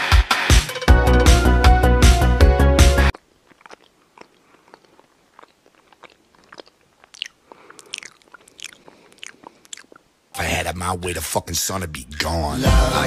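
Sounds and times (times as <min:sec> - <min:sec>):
cat chewing: 0:03.1 - 0:10.2.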